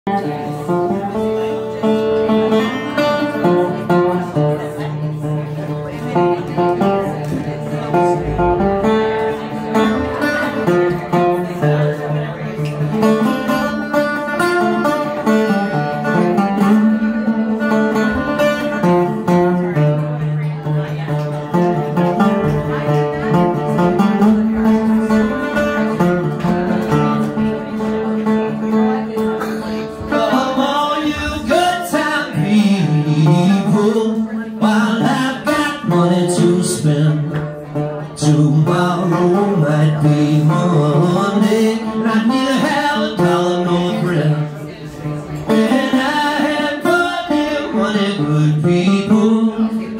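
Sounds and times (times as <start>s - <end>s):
resonator guitar: 0.0s - 49.9s
bass line: 7.8s - 10.8s.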